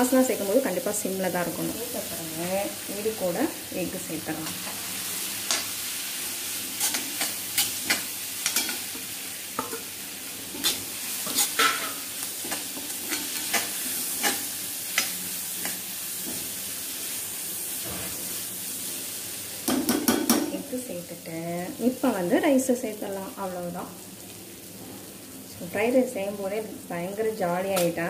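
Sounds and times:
food sizzling: 0.0 - 28.0
metal spatula scraping a wok: 6.7 - 9.0, 10.5 - 16.5.

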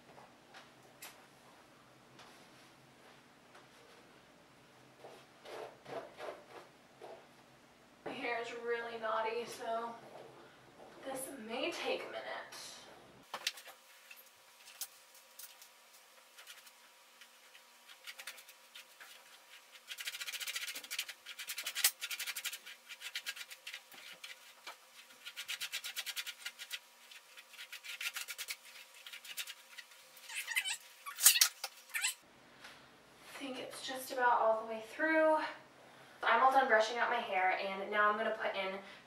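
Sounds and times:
hairbrush scratching through hair: 16.2 - 32.2.

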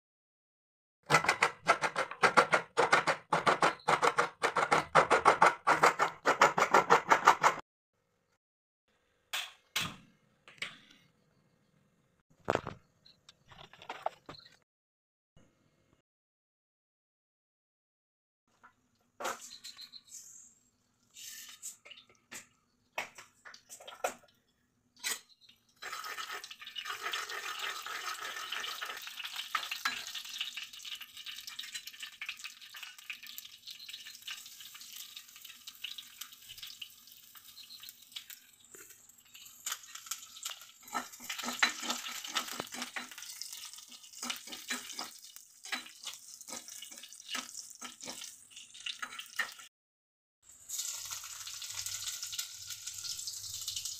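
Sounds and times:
seeds sizzling in hot oil: 25.4 - 49.7, 50.5 - 53.9
spatula scraping pan: 40.8 - 48.4.

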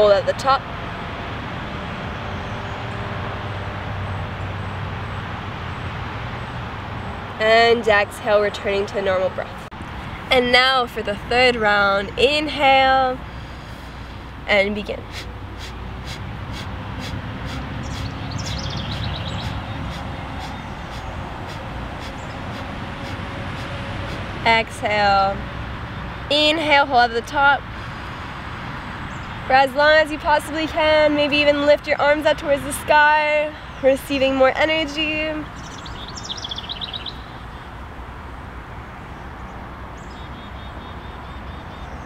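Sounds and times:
rapid forceful nasal exhales: 13.2 - 14.4, 15.0 - 24.4.

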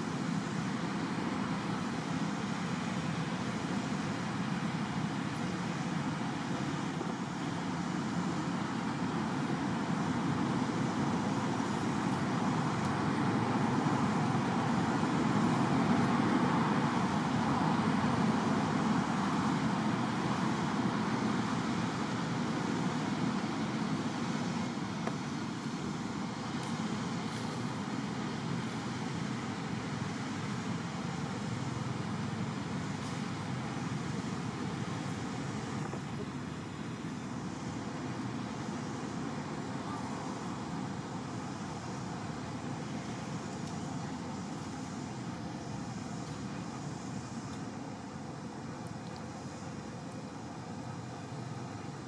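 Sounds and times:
outdoor rumble and hiss: 0.0 - 52.0.

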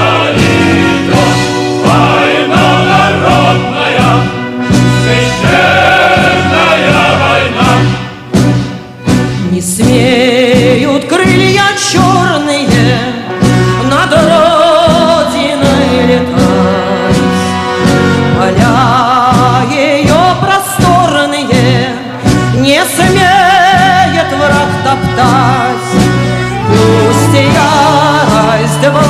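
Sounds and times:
loud backing music: 0.0 - 29.0
woman singing with vibrato: 9.4 - 17.7, 18.3 - 26.0, 26.7 - 29.0.

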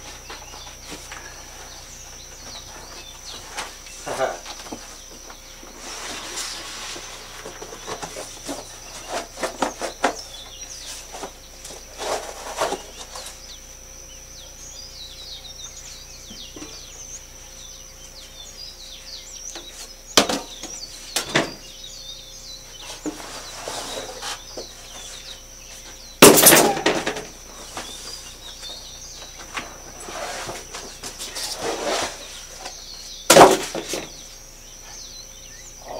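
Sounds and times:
birds chirping faintly: 0.0 - 35.9
cardboard rustling and scraping: 0.4 - 13.4, 22.7 - 25.4, 29.4 - 34.2.

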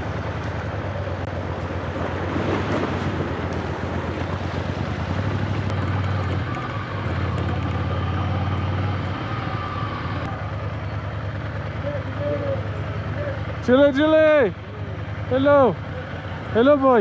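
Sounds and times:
motorcycle engine at low revs: 0.0 - 17.0.

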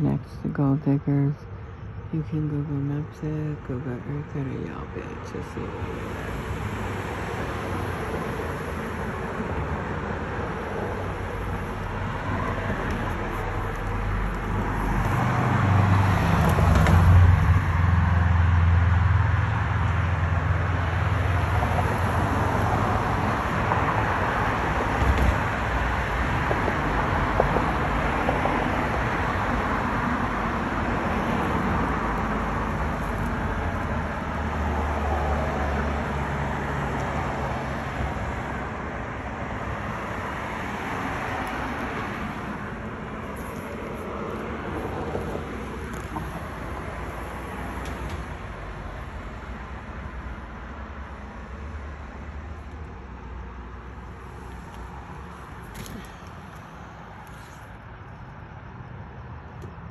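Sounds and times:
cars passing: 0.0 - 59.9.

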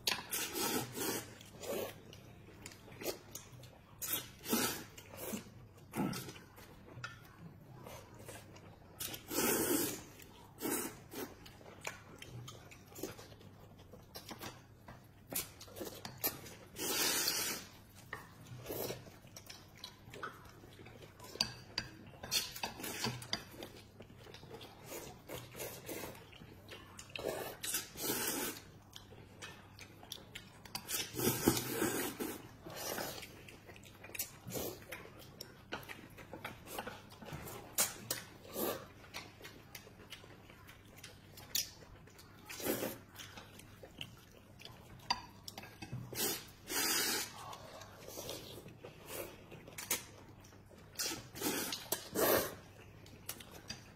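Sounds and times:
noodles being slurped: 0.2 - 2.1, 4.0 - 6.3, 15.4 - 17.9, 27.2 - 28.8, 30.8 - 33.4, 46.0 - 50.1, 50.9 - 52.8.

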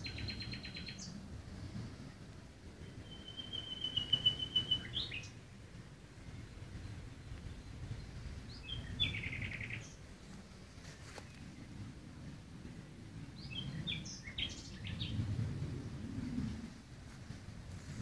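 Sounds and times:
small songbird singing: 0.0 - 1.2, 2.8 - 5.4, 6.7 - 10.0, 13.4 - 15.3
low steady background rumble: 0.0 - 18.0.

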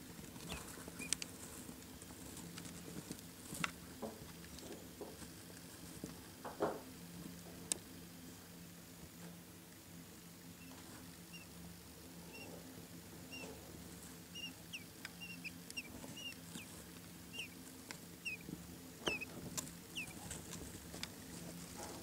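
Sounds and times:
chicks peeping: 0.1 - 5.2, 10.5 - 22.0.

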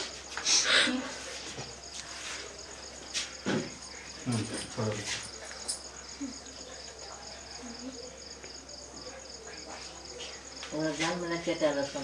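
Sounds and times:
insect chirping: 0.0 - 12.0.

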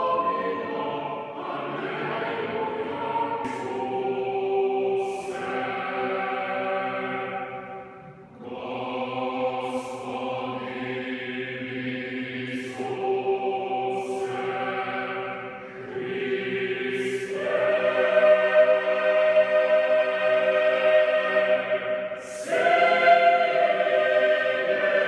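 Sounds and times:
boys' choir singing: 0.0 - 25.0.

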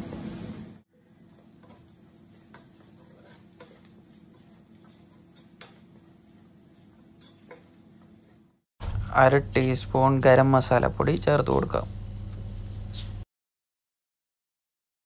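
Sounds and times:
wooden spatula tapping steel pan: 1.3 - 6.0, 7.2 - 7.8
low steady hum: 8.8 - 13.2.

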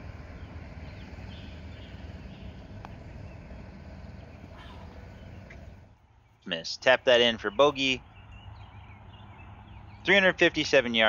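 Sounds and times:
low rumble: 0.0 - 6.5
faint bird chirps: 0.0 - 10.4
putter striking golf ball: 2.8 - 3.1.

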